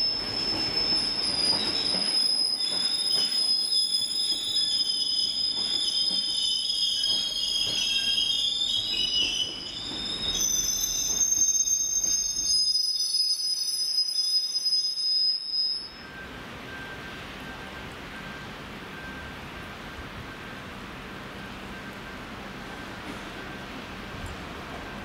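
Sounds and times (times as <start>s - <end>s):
train wheels squealing: 0.0s - 19.4s
low train rumble: 15.9s - 25.0s.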